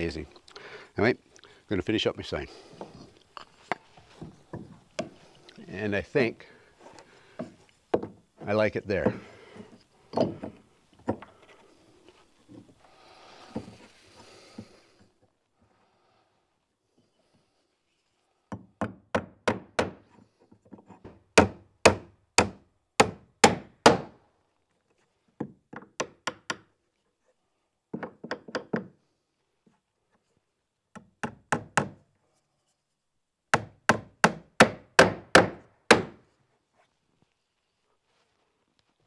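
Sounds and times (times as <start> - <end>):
hammer driving nails into wood: 18.5 - 20.1, 21.0 - 24.2, 25.4 - 26.7, 30.9 - 32.0, 33.6 - 36.2.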